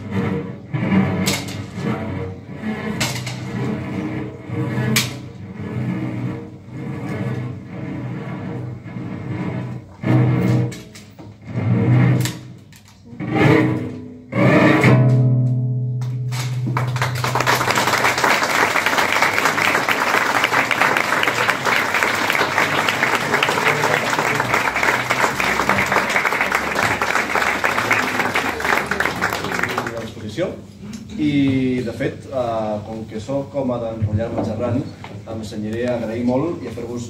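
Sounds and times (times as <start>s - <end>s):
solo cello bowed phrases: 0.0s - 15.8s, 16.7s - 30.0s
audience applause: 16.7s - 30.3s.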